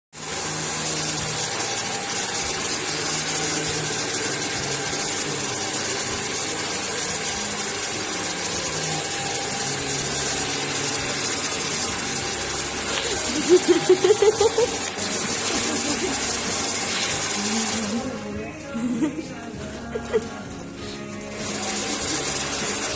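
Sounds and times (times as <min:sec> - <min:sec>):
hair dryer blowing: 0:00.2 - 0:19.3, 0:19.9 - 0:22.9.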